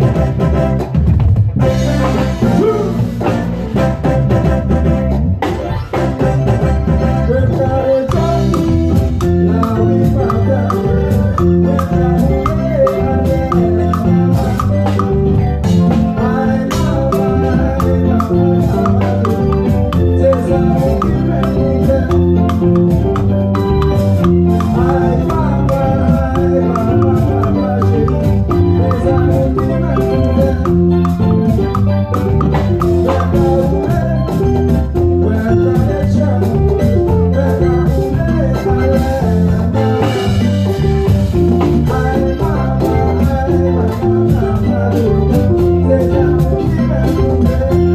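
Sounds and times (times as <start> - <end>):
band playing latin music: 0.0 - 47.9
bass and keyboard notes: 0.0 - 47.9
electronic conga and bongo hits: 0.0 - 47.9.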